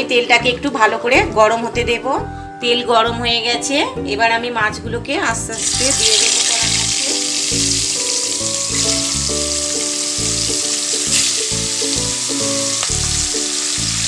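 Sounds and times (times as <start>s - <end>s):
melodic instrumental music: 0.0s - 14.0s
fish sizzling in oil: 5.6s - 14.0s.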